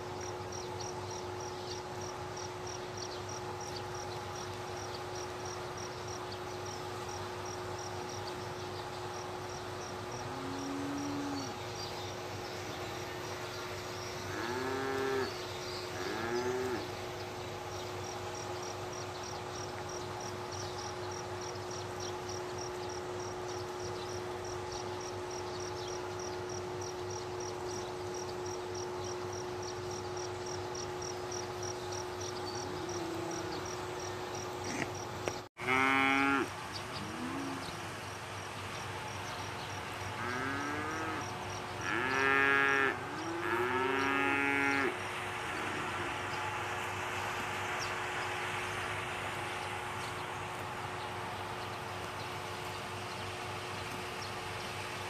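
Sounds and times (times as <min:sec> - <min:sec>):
cricket chirping: 0:00.0 - 0:35.4
faint steady hum: 0:00.0 - 0:55.0
cows mooing: 0:14.3 - 0:15.4, 0:16.0 - 0:16.9, 0:35.6 - 0:37.8, 0:40.2 - 0:46.2.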